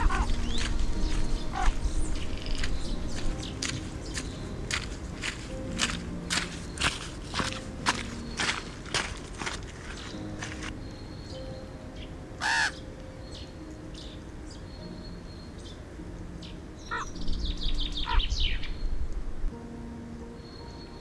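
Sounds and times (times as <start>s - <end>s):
crow cawing: 0.0s - 0.4s, 1.5s - 1.8s, 12.4s - 12.8s
high falling bird chirps: 16.8s - 19.0s.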